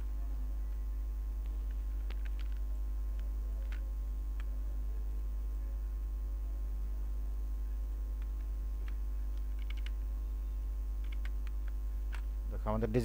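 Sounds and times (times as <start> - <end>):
low electrical hum: 0.0 - 13.0
computer input clicks: 11.0 - 11.8.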